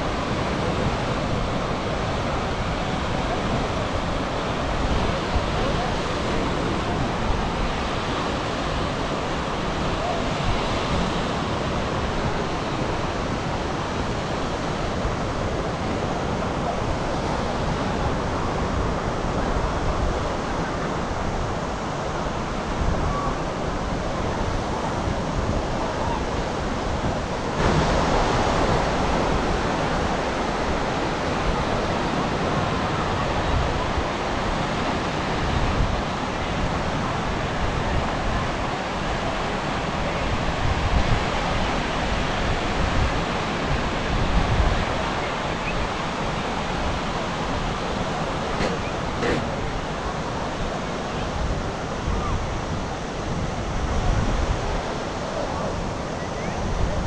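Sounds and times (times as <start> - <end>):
faint voices: 0.0 - 14.2, 44.9 - 52.7
sea surf washing onto beach: 0.0 - 57.0.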